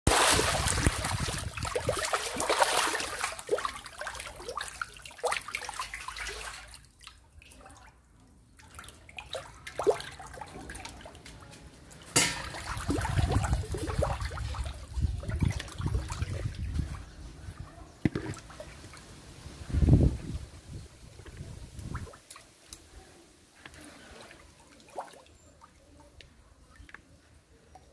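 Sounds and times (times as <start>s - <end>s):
fish thrashing and splashing: 0.1s - 6.7s
water dripping: 0.1s - 17.0s, 21.2s - 22.9s.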